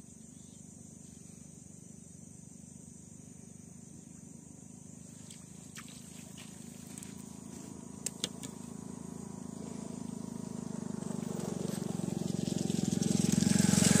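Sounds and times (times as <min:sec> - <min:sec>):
vehicle engine approaching: 0:04.6 - 0:14.0.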